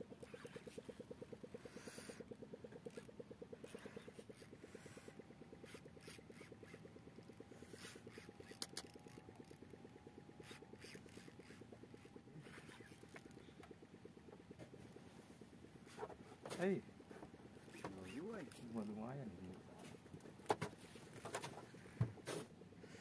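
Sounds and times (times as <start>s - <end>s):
rapid low throb: 0.0s - 23.0s
fishing reel scraping and clicking: 0.2s - 13.8s, 15.8s - 20.0s.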